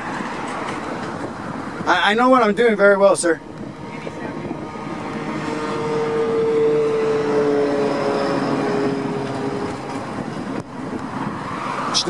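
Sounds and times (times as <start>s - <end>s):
vehicle engine passing by: 3.7s - 12.0s.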